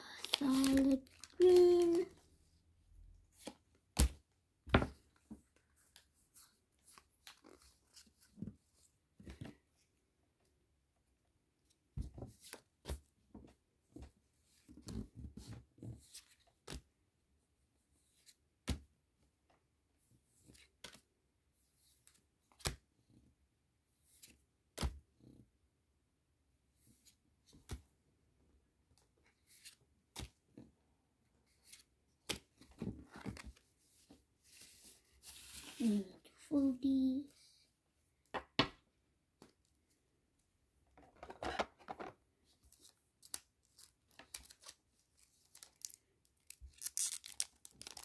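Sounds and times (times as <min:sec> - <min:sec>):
cards flicking and rustling: 0:42.7 - 0:48.0.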